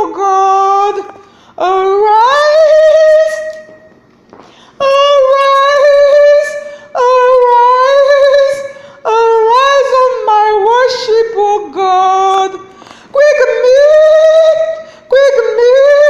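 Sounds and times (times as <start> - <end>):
woman singing high notes: 0.0 - 3.9, 4.8 - 12.6.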